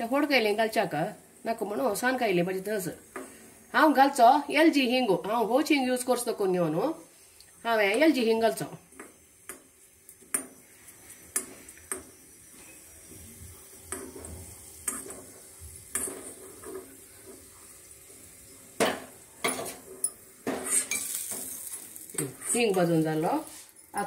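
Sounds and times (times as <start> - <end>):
faint sizzling: 0.0 - 24.0
spoon scraping metal pan: 19.5 - 24.0.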